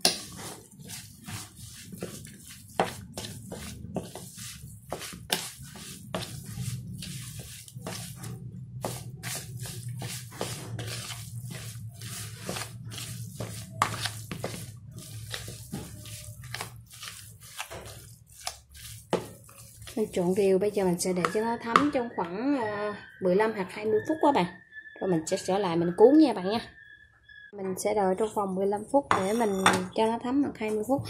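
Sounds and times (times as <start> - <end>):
wet squelches of kneading meat: 0.0 - 21.6.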